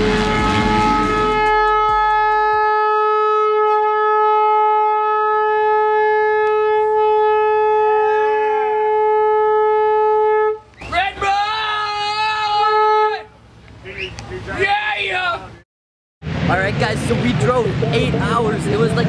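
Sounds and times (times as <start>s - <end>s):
air horn blast: 0.0s - 10.7s.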